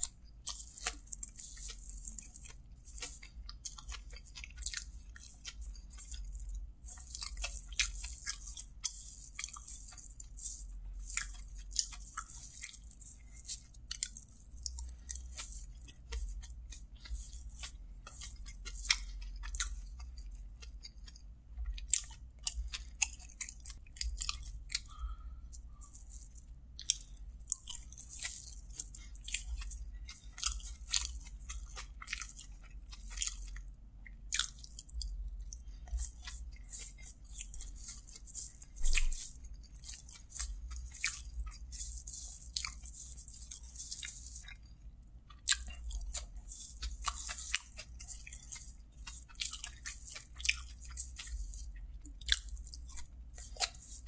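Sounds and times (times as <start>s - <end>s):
wet chewing and mouth smacks: 0.0s - 54.0s.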